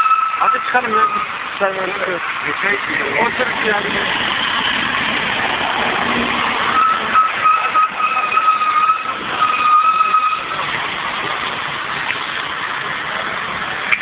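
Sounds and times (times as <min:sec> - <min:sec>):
traffic and street noise: 0:00.0 - 0:14.0.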